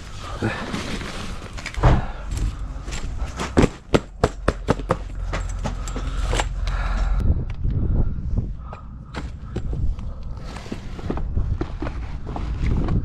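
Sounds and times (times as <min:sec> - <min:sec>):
thump: 0:01.8 - 0:02.1
low steady rumble: 0:04.4 - 0:13.0.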